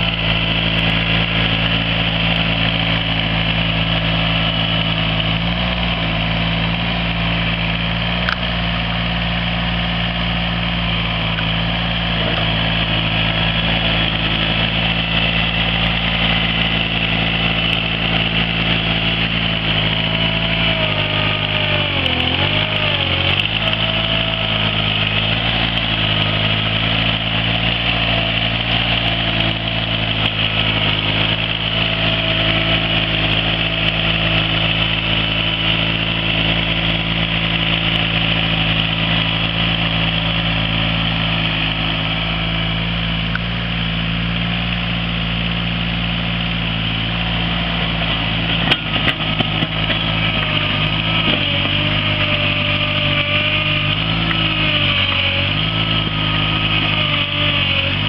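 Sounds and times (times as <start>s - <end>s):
blade pushing dirt: 0.0s - 58.0s
grader engine running: 0.0s - 58.0s.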